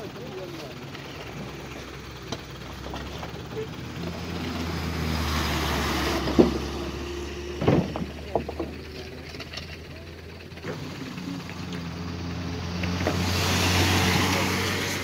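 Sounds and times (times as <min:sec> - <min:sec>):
truck engines: 0:00.0 - 0:15.0
tyres on gravel: 0:00.0 - 0:15.0.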